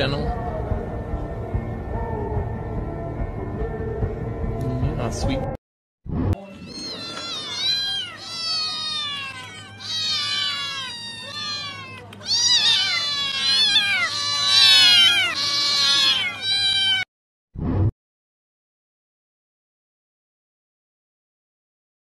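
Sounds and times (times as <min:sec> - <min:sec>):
cats meowing: 0:06.4 - 0:17.1.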